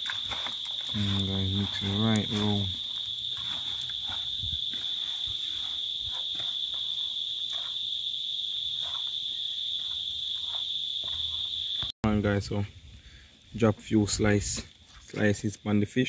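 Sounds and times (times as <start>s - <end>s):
hand mixing vegetables in bowl: 0.0s - 2.8s
insects droning: 0.0s - 16.0s.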